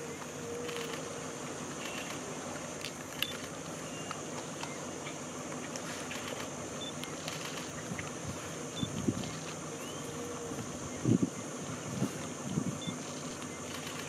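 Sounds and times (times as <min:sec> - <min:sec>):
outdoor background noise: 0:00.0 - 0:14.0
faint clicks: 0:02.8 - 0:04.8.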